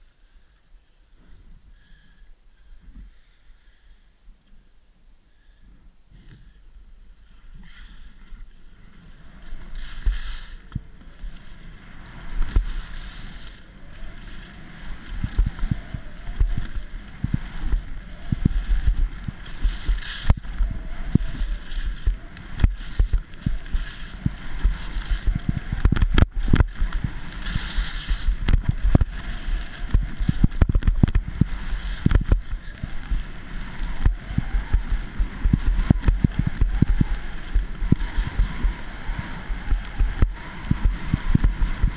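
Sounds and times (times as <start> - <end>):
skis scraping on snow: 7.1 - 41.9
wind buffeting microphone: 11.8 - 41.9.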